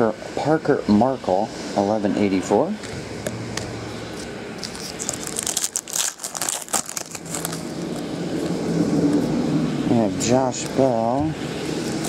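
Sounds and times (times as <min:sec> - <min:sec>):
cards rustling: 0:04.1 - 0:08.6
foil wrapper crinkling: 0:04.1 - 0:08.6.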